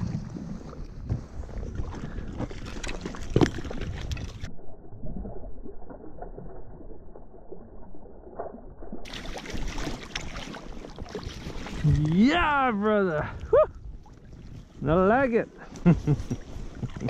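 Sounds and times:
fish thrashing and splashing water: 0.0s - 12.2s.

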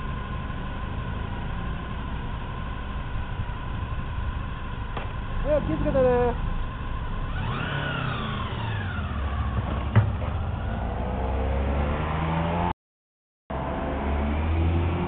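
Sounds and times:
supercharger whine: 0.0s - 12.7s, 13.5s - 15.0s
traffic engine note: 0.0s - 12.7s
motorcycle engine revving: 4.8s - 12.8s, 13.5s - 15.0s.

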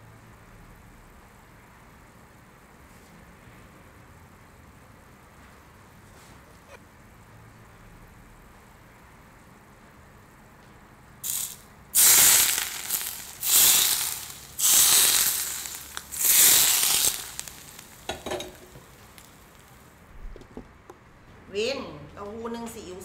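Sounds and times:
hot oil sizzling on food: 11.2s - 20.0s.

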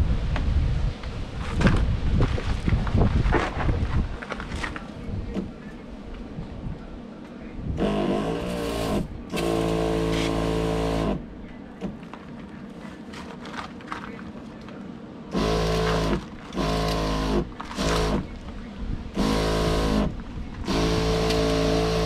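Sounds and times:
electric sprayer pump humming: 7.8s - 11.2s, 15.3s - 18.4s, 19.1s - 22.0s.

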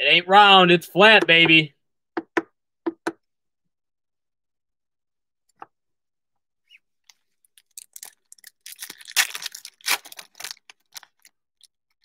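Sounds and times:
foil wrapper tearing and crinkling: 7.6s - 11.3s.

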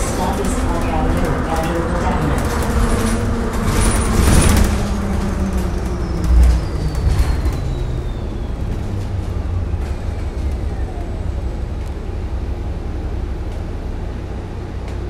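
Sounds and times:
bus low rumble: 0.0s - 15.0s.

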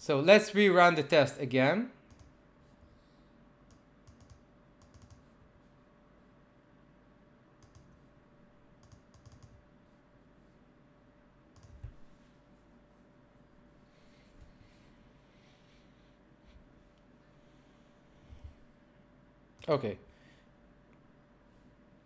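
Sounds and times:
faint steady hum: 0.0s - 22.0s
keyboard and mouse clicks: 2.1s - 2.4s, 3.7s - 5.3s, 7.6s - 8.0s, 8.8s - 9.6s, 11.6s - 12.0s.

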